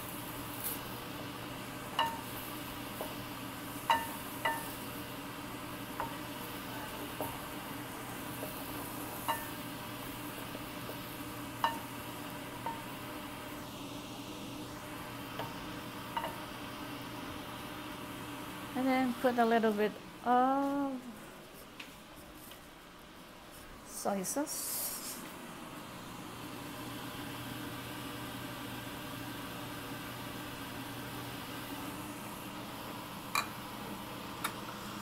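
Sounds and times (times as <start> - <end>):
food sizzling in a pan: 0.0 - 19.8, 24.2 - 35.0
spatula knocking against pan: 2.0 - 2.2, 3.8 - 4.7, 9.3 - 9.6, 16.1 - 16.4.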